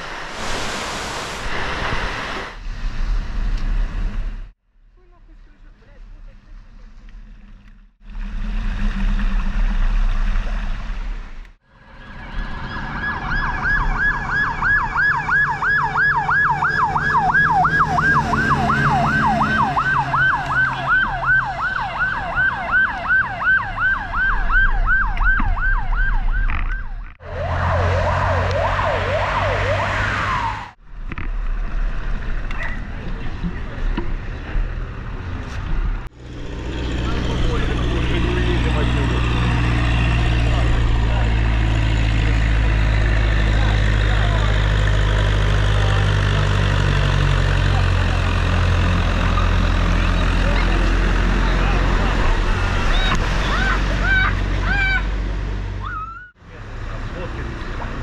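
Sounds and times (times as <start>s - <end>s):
emergency siren: 11.8s - 30.8s, 55.8s - 56.4s.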